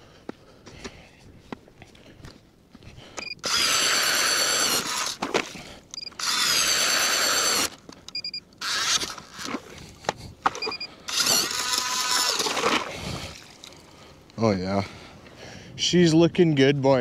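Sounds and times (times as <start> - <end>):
ice auger motor whining: 3.4 - 5.3, 6.2 - 7.8, 8.6 - 9.6, 11.1 - 12.8.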